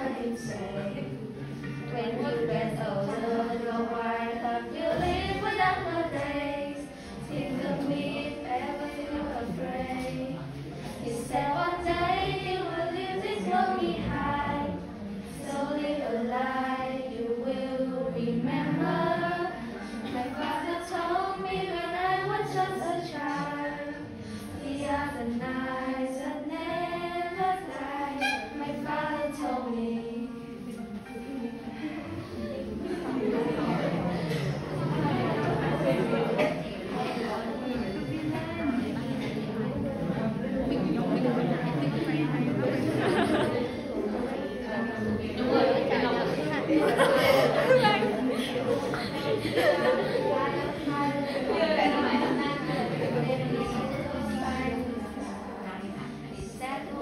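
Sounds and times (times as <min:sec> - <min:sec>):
girls singing together: 0:00.0 - 0:57.0.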